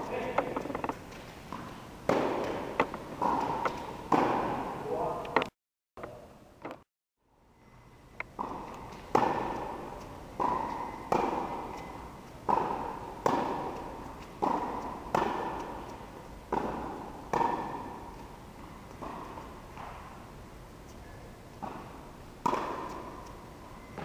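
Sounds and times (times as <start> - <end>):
tennis ball struck by racket: 0.0 - 4.8, 8.4 - 15.8, 16.5 - 18.2, 19.0 - 20.1, 21.6 - 23.2
tennis ball bouncing on court: 0.0 - 5.4, 8.2 - 20.2, 21.6 - 24.0.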